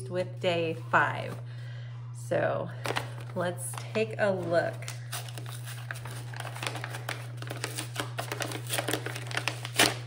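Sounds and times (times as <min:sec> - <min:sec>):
steady low hum: 0:00.0 - 0:09.9
paper envelope crinkling: 0:02.8 - 0:10.0.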